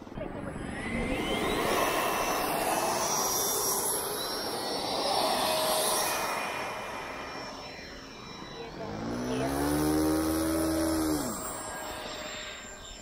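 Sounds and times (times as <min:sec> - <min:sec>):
ducted fan spooling up whine: 0:00.0 - 0:13.0
rush of air noise: 0:00.6 - 0:08.6.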